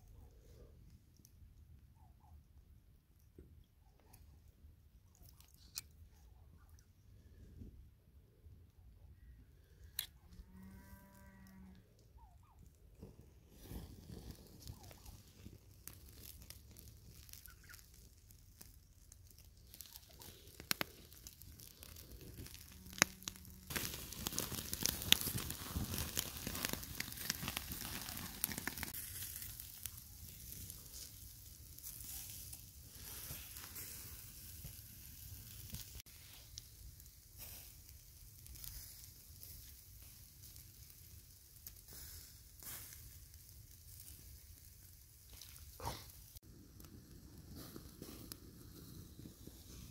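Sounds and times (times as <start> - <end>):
meat sizzling over charcoal: 13.0 - 49.9.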